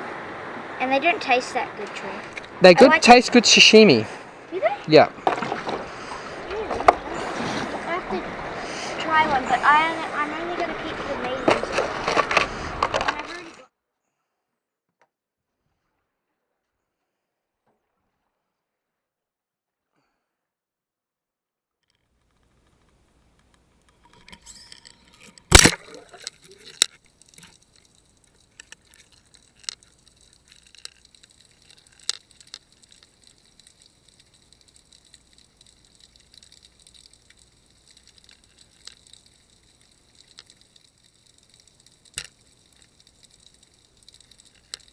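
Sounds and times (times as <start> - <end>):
faint high hiss: 0.8 - 5.2
underwater clicks and ticks: 1.8 - 7.9, 9.0 - 13.6, 21.8 - 44.9.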